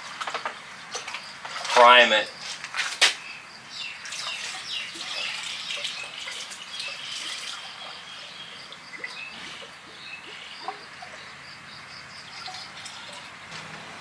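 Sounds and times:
water pouring and splashing: 0.9s - 2.0s, 4.0s - 11.2s, 12.3s - 14.0s.

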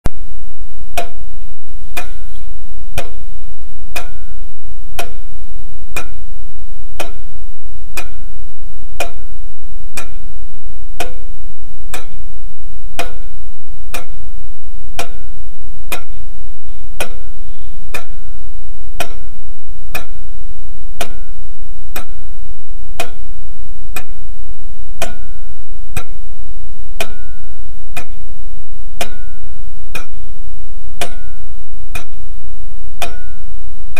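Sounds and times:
low hum: 0.1s - 33.9s
clock ticking: 0.9s - 8.4s, 9.0s - 30.4s, 31.0s - 32.4s, 33.0s - 33.6s.

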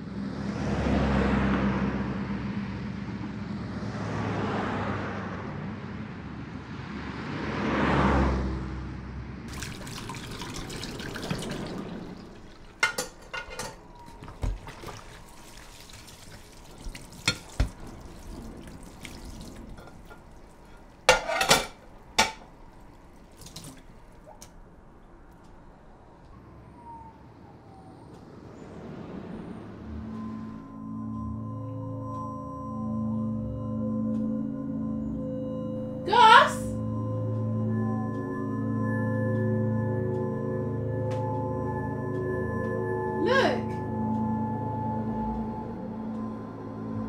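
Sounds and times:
traffic passing: 0.0s - 47.0s
water running into a steel sink: 9.5s - 22.5s
dishes clinking and knocking: 12.6s - 14.8s, 17.2s - 17.8s, 21.1s - 22.5s.

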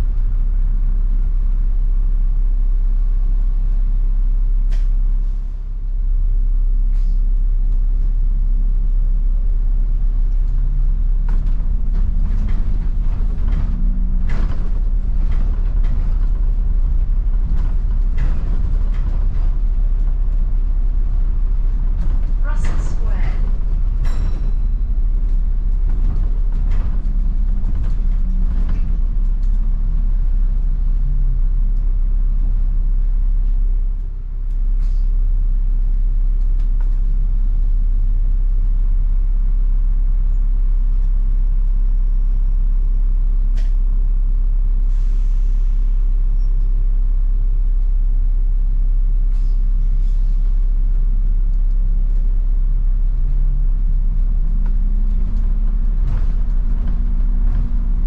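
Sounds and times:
bus engine rumble: 0.0s - 58.0s.

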